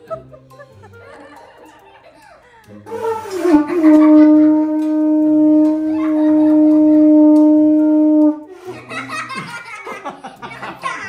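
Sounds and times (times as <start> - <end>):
conch shell horn note: 2.9 - 8.5.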